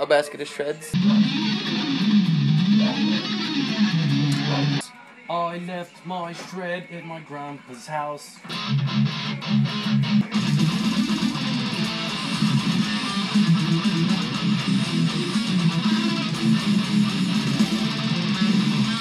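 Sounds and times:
electric guitar heavy metal riff: 0.9s - 4.9s, 8.5s - 19.0s.

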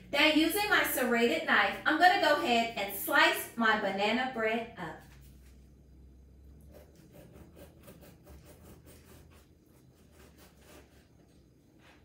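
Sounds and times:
bread knife sawing through bread: 6.6s - 11.3s.

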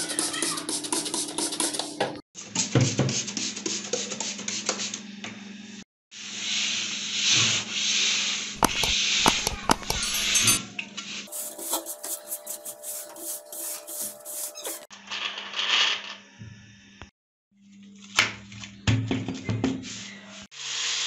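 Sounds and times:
sanding sponge scrubbing iron pan: 11.3s - 14.9s.

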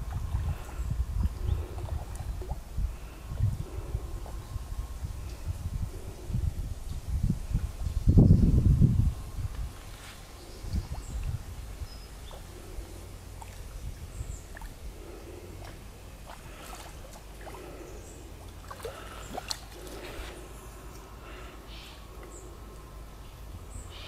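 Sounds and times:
water sloshing and dripping: 0.0s - 3.6s, 12.2s - 21.2s.

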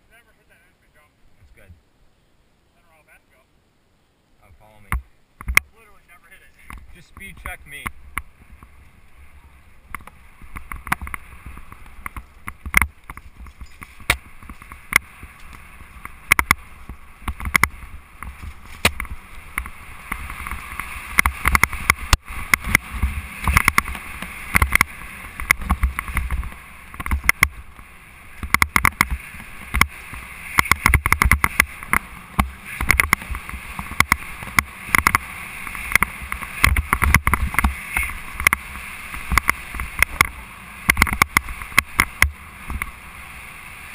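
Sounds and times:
wind buffeting microphone: 6.7s - 43.9s
mountain bike rattling on dirt trail: 9.9s - 43.0s
sharp knocks of bike on bumps: 9.9s - 43.0s.

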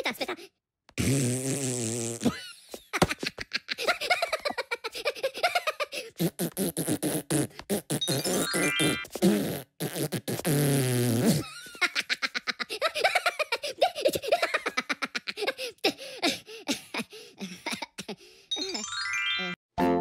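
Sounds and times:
cartoon fart sound effect: 1.0s - 2.4s, 6.2s - 11.5s
high-pitched cartoon giggling: 2.9s - 6.2s, 11.4s - 16.0s.

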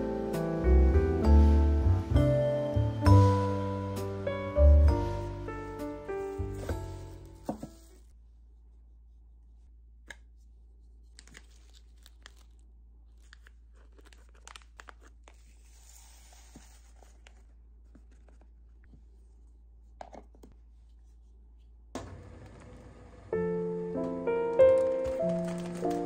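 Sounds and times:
plastic bag crinkling: 11.1s - 15.7s, 24.9s - 26.0s.

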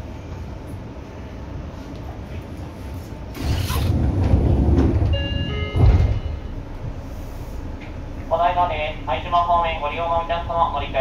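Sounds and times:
train low rumble: 0.0s - 11.0s
heavy clunk: 3.7s - 6.6s.

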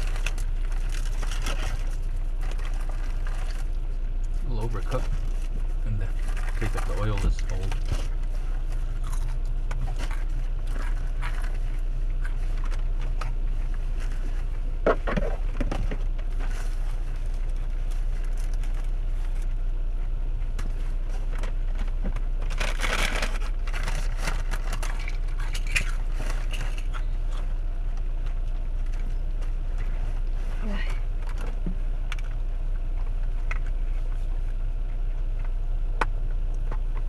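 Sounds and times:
steady low rumble: 0.0s - 37.0s
food packaging crinkling: 22.5s - 27.4s.

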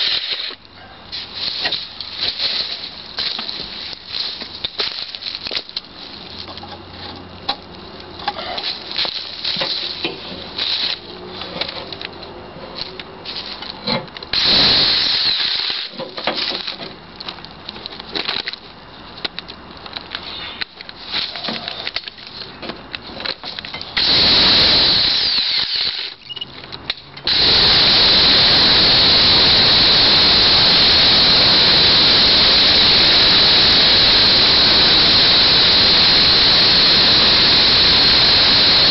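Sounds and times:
electric chainsaw cutting wood: 0.0s - 0.6s, 14.4s - 15.9s, 24.0s - 26.2s, 27.2s - 38.9s.

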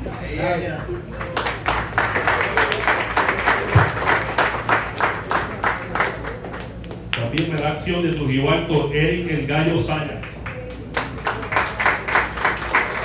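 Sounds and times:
small group applauding: 0.0s - 8.3s, 10.3s - 13.0s.

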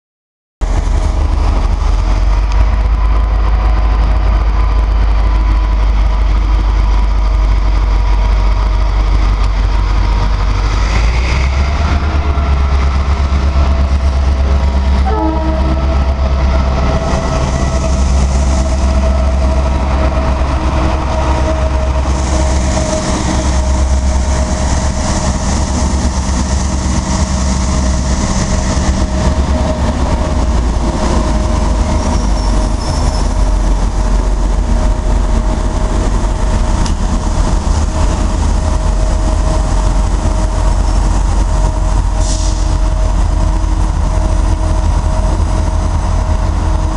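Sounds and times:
diesel locomotive rumble: 0.6s - 46.9s
wheel and rail noise: 0.6s - 46.9s
train horn: 14.9s - 24.6s.

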